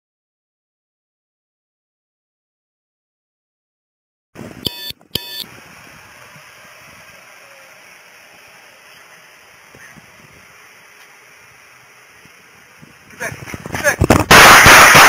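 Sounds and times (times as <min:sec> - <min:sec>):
outdoor background hiss: 0:04.4 - 0:15.0
short electronic beeps: 0:04.6 - 0:05.5.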